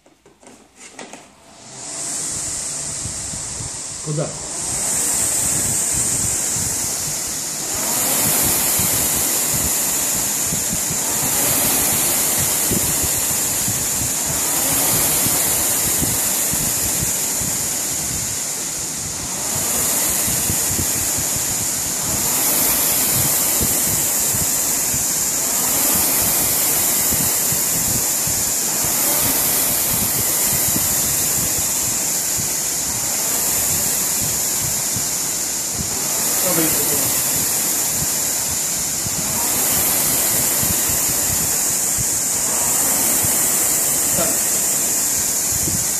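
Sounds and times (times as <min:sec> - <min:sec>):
rowing machine flywheel whooshing: 0:00.7 - 0:45.9.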